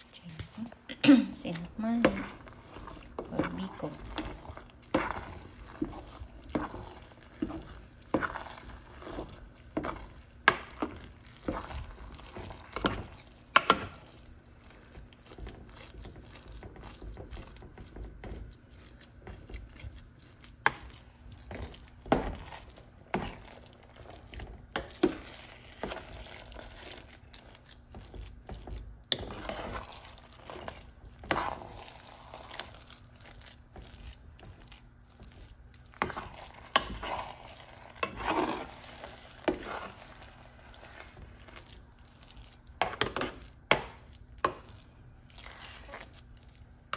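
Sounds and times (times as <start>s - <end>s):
spoon scraping in a metal pot: 29.1s - 32.8s, 36.0s - 41.7s, 42.8s - 44.6s.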